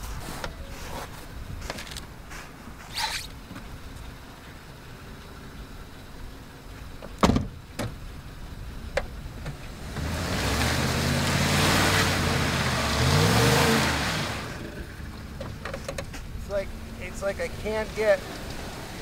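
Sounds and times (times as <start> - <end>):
tyres churning in snow and mud: 0.0 - 19.0
car door slamming: 7.0 - 8.0
truck engine revving: 9.4 - 15.4.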